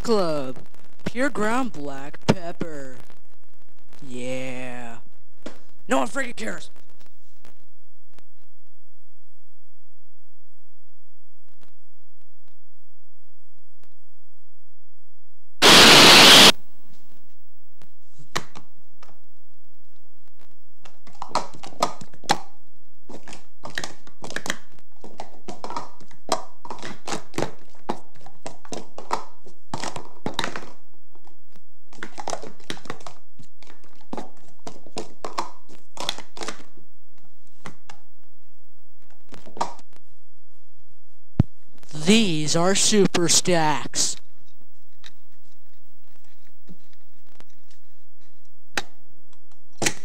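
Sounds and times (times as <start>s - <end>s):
loud static hiss: 0.0s - 8.3s, 15.6s - 16.9s, 38.4s - 44.3s.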